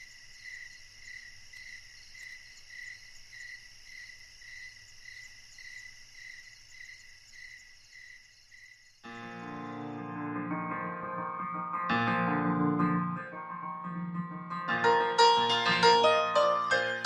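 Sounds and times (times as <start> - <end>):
crickets chirping: 0.0 - 10.1.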